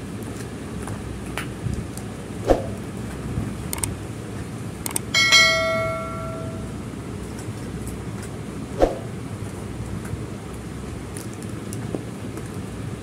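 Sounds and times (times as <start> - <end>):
quick clicks: 3.7 - 3.9, 4.8 - 5.1
bell-like notification chime: 5.2 - 6.8.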